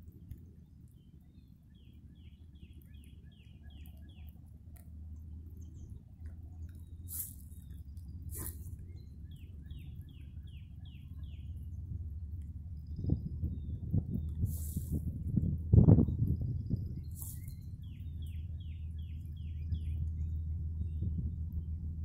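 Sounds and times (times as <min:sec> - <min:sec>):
low steady rumble: 0:00.0 - 0:22.0
songbird whistling: 0:06.8 - 0:11.6, 0:16.8 - 0:20.4.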